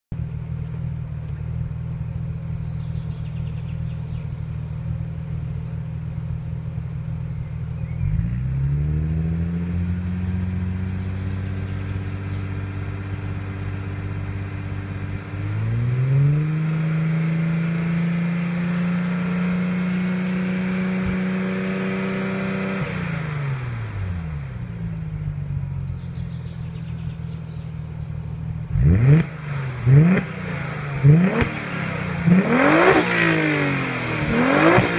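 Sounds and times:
car exhaust idling: 0.1 - 17.7, 22.8 - 34.9
engine rev blips: 7.4 - 27.7, 28.6 - 34.9
engine revving: 7.8 - 26.3, 28.6 - 34.9.

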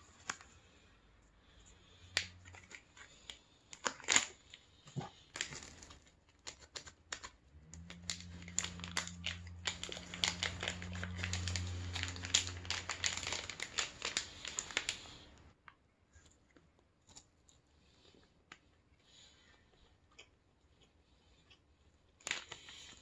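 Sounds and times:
plastic wrapper crinkling: 2.1 - 15.6, 22.2 - 23.0
low steady hum: 7.2 - 17.6.

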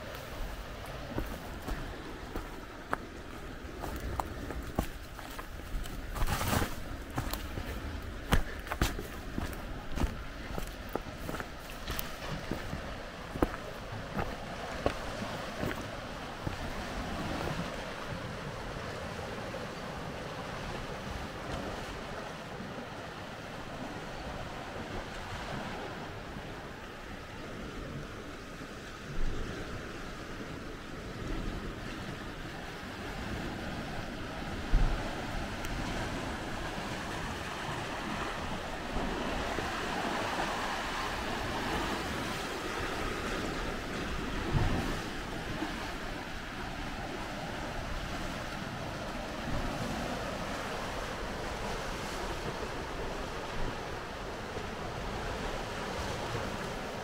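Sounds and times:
steady rushing outdoor noise: 0.0 - 31.4
sea surf against rocks: 0.0 - 57.0
wind on microphone: 0.0 - 57.0.

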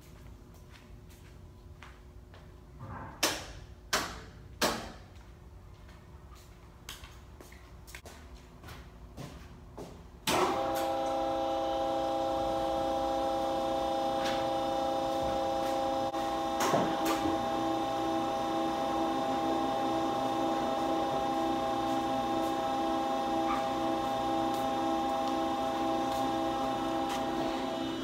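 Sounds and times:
factory machine humming: 10.2 - 28.0.

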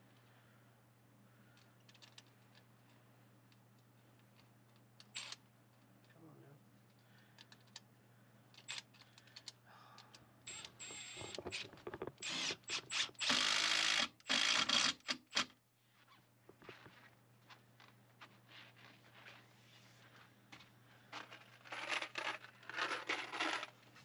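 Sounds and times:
tool bursts and clicks: 10.5 - 11.6, 12.2 - 15.6.

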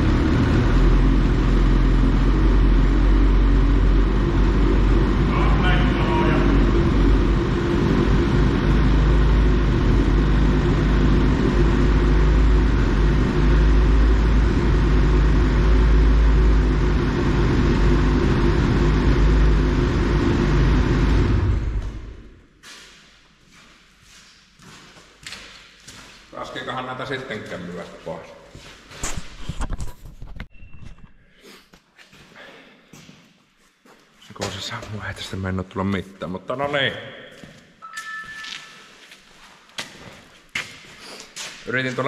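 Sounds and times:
snowmobile engine idling: 0.0 - 22.2.

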